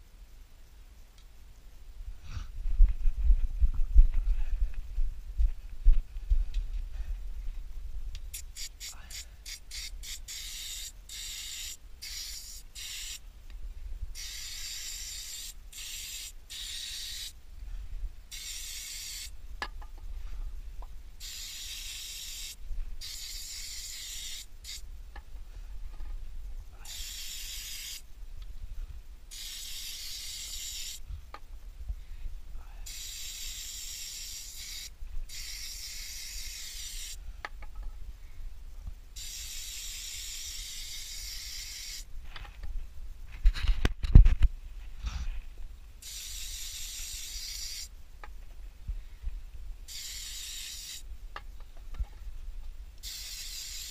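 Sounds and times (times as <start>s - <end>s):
aerosol can spraying: 8.2s - 13.2s, 14.2s - 17.4s, 18.3s - 19.4s, 21.2s - 24.8s, 26.9s - 28.0s, 29.3s - 31.0s, 32.8s - 37.2s, 39.2s - 42.1s, 46.0s - 47.9s, 49.9s - 51.0s, 53.0s - 53.9s.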